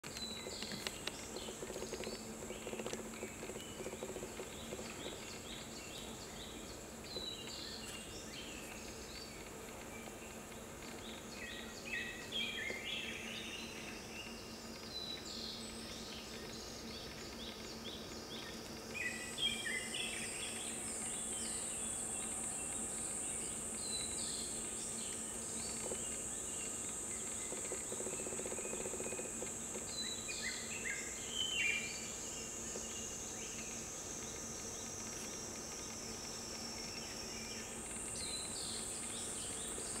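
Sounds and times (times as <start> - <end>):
songbird singing: 0.0 - 40.0
high-pitched insect drone: 11.3 - 40.0.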